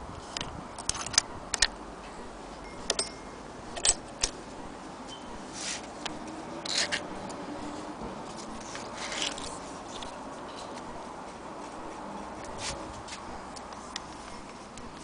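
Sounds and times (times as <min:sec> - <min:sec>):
scraping rustles: 0:05.5 - 0:15.0.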